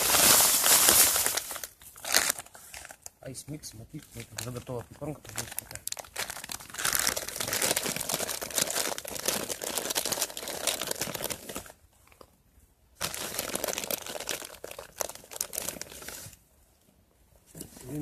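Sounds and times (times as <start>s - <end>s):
plastic packet crinkling: 0.0s - 3.2s, 3.9s - 11.8s, 13.0s - 16.3s.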